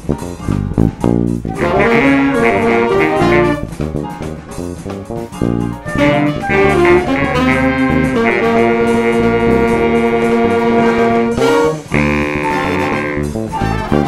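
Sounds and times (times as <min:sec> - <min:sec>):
funk jazz band playing: 0:00.0 - 0:14.0
horns holding a chord: 0:01.4 - 0:03.8, 0:05.8 - 0:14.0.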